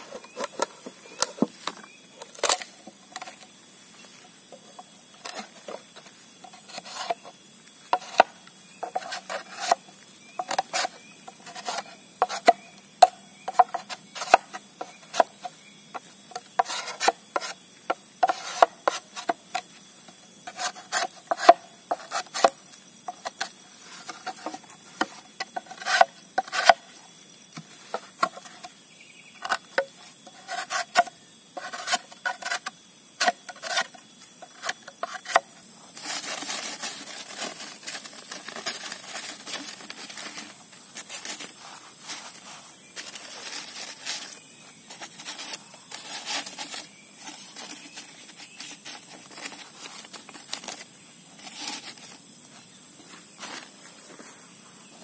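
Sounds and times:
knife scraping bamboo: 0.0 - 3.5, 4.7 - 19.8, 20.4 - 27.0, 27.6 - 52.2
steady hiss: 0.0 - 55.0.

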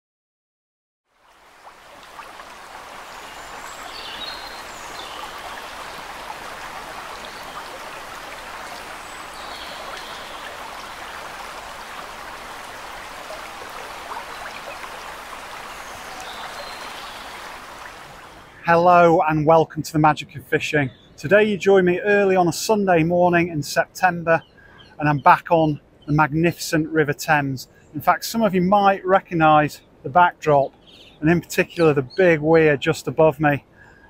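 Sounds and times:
water rushing through a weir: 1.3 - 18.6.

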